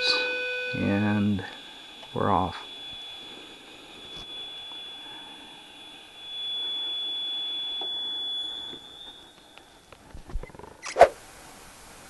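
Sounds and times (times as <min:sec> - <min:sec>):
thin high whine: 0:00.0 - 0:12.0
welding torch gas hiss: 0:01.0 - 0:10.3.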